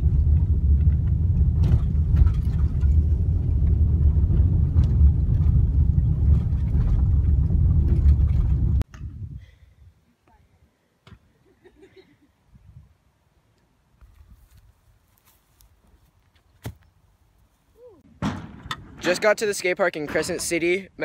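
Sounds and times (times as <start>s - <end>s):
car driving on dirt road: 0.0s - 8.8s.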